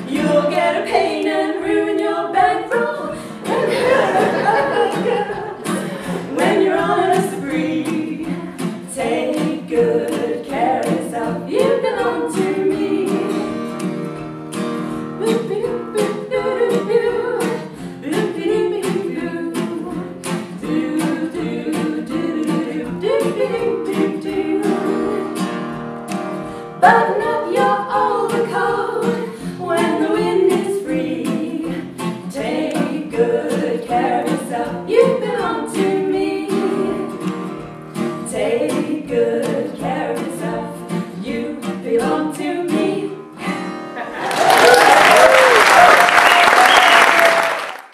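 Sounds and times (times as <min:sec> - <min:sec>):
voices singing together: 0:00.0 - 0:13.7, 0:15.2 - 0:25.8, 0:26.7 - 0:47.5
strummed acoustic guitar: 0:00.0 - 0:44.2.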